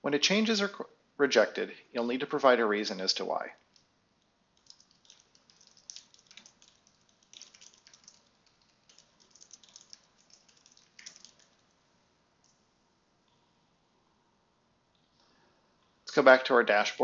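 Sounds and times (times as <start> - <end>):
typing on keyboard: 4.6 - 11.6.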